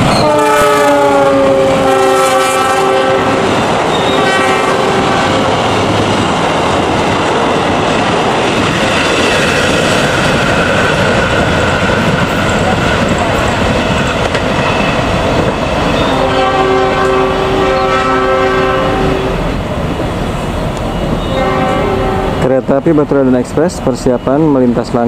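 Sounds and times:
locomotive horn blasts: 0:00.1 - 0:05.7, 0:16.0 - 0:19.4, 0:21.2 - 0:22.5
train wheels clacking over rail joints: 0:05.6 - 0:16.2.

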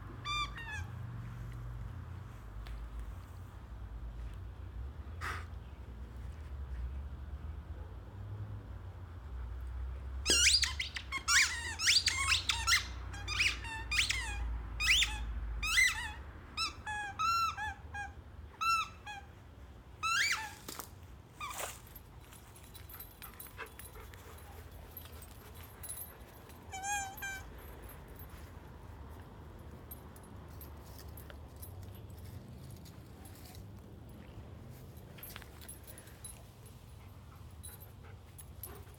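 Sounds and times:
squeaky toy squeaking: 0:00.2 - 0:01.1, 0:10.2 - 0:19.4, 0:20.0 - 0:20.8, 0:21.4 - 0:21.8, 0:24.8 - 0:28.2.

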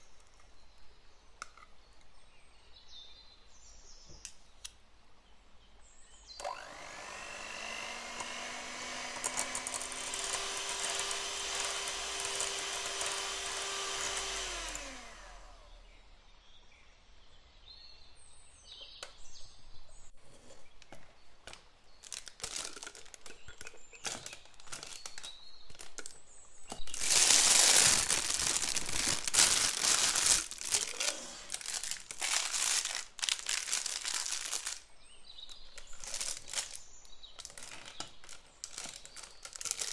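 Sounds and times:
electric hand mixer whipping cream: 0:06.4 - 0:15.8, 0:26.9 - 0:32.2
plastic piping bag crinkling: 0:07.4 - 0:15.4, 0:21.4 - 0:39.9
scraping and clicking: 0:20.2 - 0:29.7.

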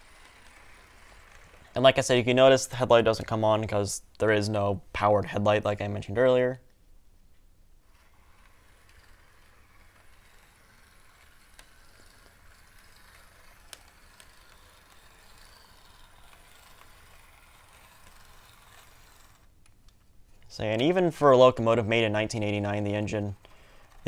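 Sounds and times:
model train motor whirring: 0:00.0 - 0:01.8, 0:07.8 - 0:19.5, 0:20.8 - 0:24.0.

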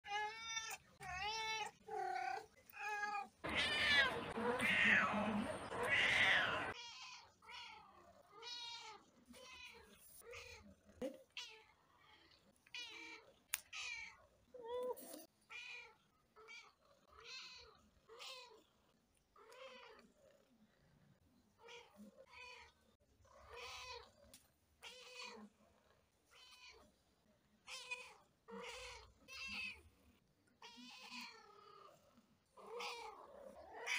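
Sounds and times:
cats meowing: 0:00.0 - 0:11.8, 0:27.7 - 0:29.9, 0:30.5 - 0:31.9, 0:32.6 - 0:33.9
cat drawn-out call: 0:03.4 - 0:06.8.

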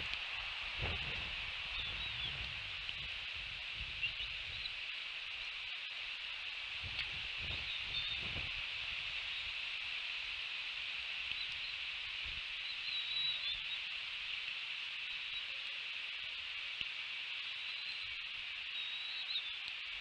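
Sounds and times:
steady high hiss: 0:00.0 - 0:20.0
faint high chirps: 0:17.5 - 0:19.7.

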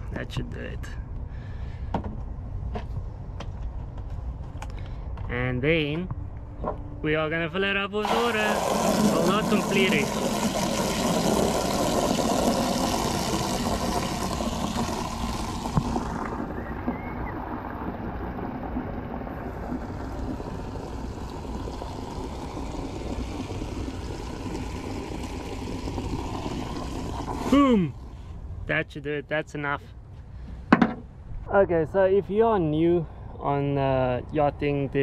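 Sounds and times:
water from hose splashing into bucket: 0:08.0 - 0:28.2.

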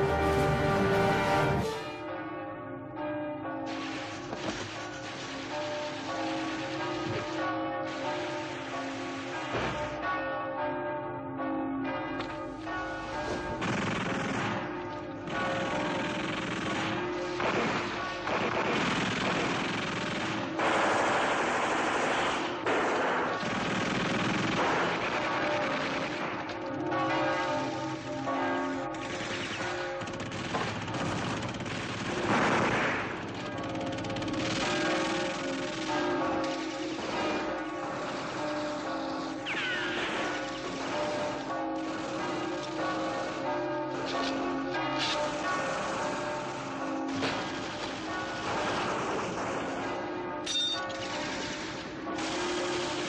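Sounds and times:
church bells ringing: 0:00.0 - 0:18.7, 0:20.3 - 0:20.8, 0:22.4 - 0:23.6, 0:24.6 - 0:31.1, 0:33.1 - 0:53.0
machine-gun and rifle fire: 0:13.4 - 0:28.1, 0:28.8 - 0:50.1, 0:50.8 - 0:53.0.

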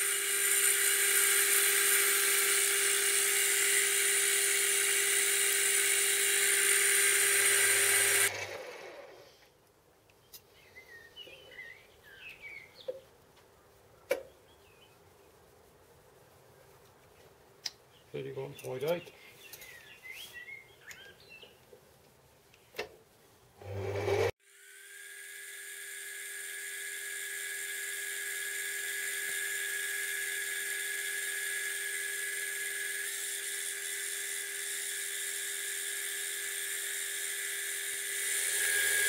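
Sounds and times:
lathe motor whine: 0:00.0 - 0:09.2, 0:23.6 - 0:39.0.

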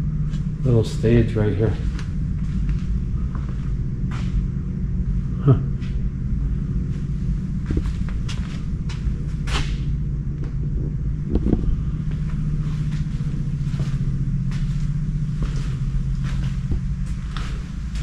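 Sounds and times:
low rumble: 0:00.0 - 0:18.0
footsteps: 0:01.8 - 0:04.5, 0:06.8 - 0:10.6, 0:11.3 - 0:18.0.

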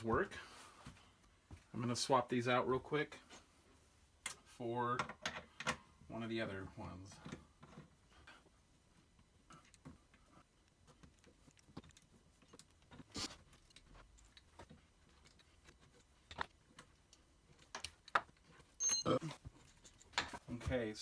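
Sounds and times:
sharp metal clink: 0:18.8 - 0:19.2
metal clicks and clinks: 0:18.8 - 0:20.1.

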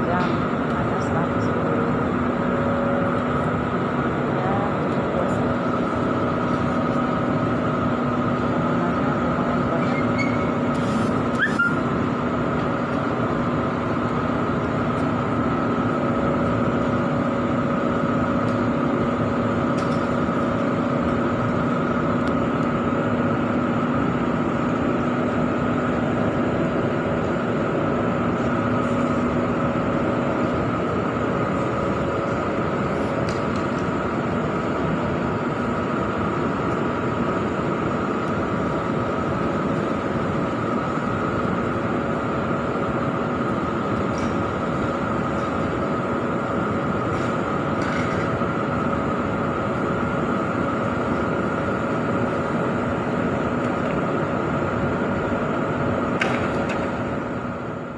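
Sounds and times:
machine hum with steady tones: 0:00.0 - 0:57.9
brief rising squeak: 0:09.8 - 0:10.6, 0:11.3 - 0:11.8.

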